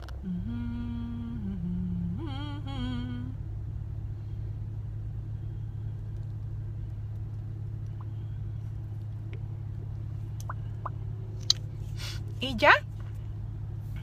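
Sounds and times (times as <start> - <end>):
car engine idling: 0.0 - 14.0
person humming: 0.2 - 3.4.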